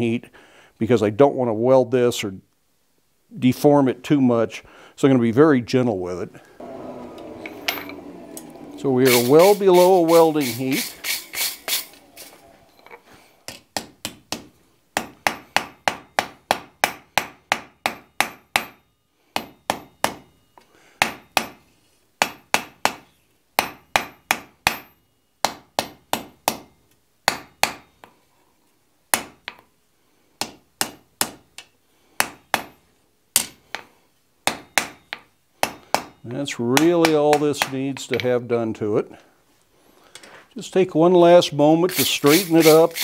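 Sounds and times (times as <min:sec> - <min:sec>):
hammer striking iron on anvil: 0:13.8 - 0:18.8, 0:19.4 - 0:20.3, 0:21.0 - 0:21.6, 0:22.2 - 0:23.0, 0:23.6 - 0:26.7, 0:27.3 - 0:28.0, 0:32.2 - 0:32.8, 0:34.5 - 0:36.2.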